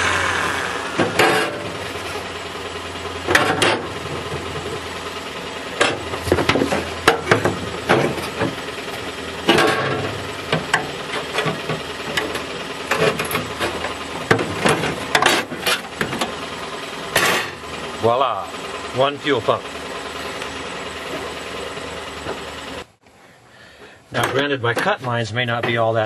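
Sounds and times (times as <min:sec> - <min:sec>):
air tool cutting sheet metal: 0:00.0 - 0:01.6
metal knocks and clanks: 0:03.2 - 0:04.8, 0:05.8 - 0:08.6, 0:09.4 - 0:16.4.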